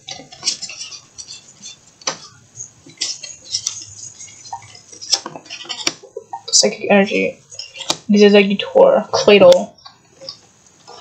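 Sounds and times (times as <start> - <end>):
trading cards shuffling: 0.0 - 6.2.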